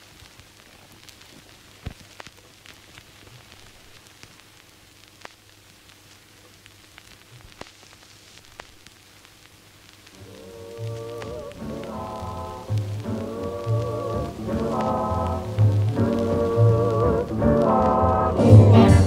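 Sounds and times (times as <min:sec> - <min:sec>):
crackles and sharp clicks: 0:00.0 - 0:19.0
faint hiss: 0:00.0 - 0:19.0
low hum: 0:10.1 - 0:19.0
music: 0:10.2 - 0:19.0.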